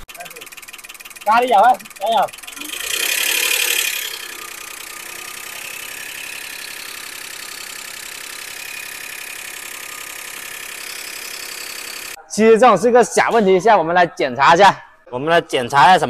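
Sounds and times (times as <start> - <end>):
car engine idling: 0.0 - 12.2
rapid valvetrain ticking: 0.0 - 12.2.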